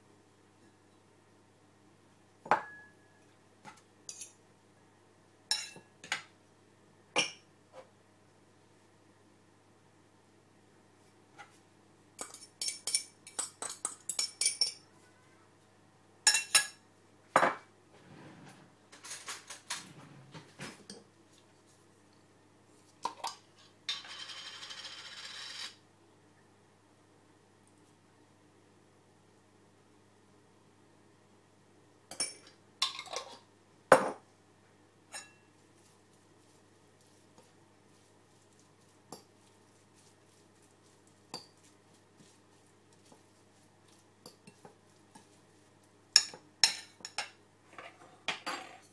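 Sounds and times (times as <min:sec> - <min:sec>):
kitchenware clinking: 0:02.5 - 0:02.9, 0:05.5 - 0:06.3, 0:12.2 - 0:14.9, 0:16.3 - 0:16.8, 0:18.9 - 0:19.8, 0:32.1 - 0:34.2, 0:35.1 - 0:35.5, 0:46.1 - 0:48.9
spoon clinking on glass jar: 0:12.2 - 0:14.8.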